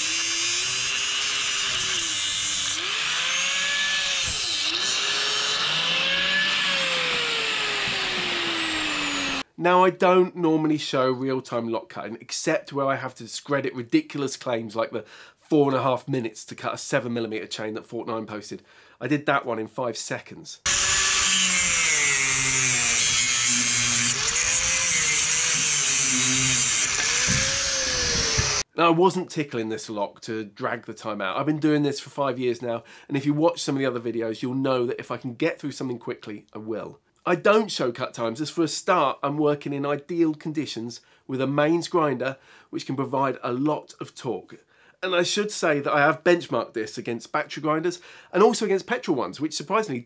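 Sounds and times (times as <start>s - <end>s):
angle grinder cutting metal: 0.0s - 9.4s, 20.7s - 28.6s.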